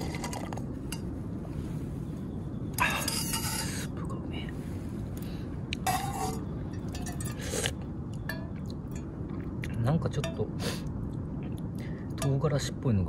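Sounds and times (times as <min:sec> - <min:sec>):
spoon scraping metal pot: 0:02.8 - 0:03.9, 0:05.8 - 0:07.7.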